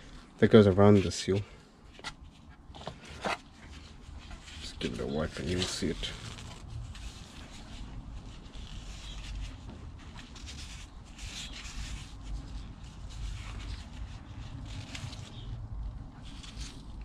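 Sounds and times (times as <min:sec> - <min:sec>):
low background rumble: 0:00.0 - 0:17.0
gloved hands rubbing metal: 0:03.7 - 0:15.6.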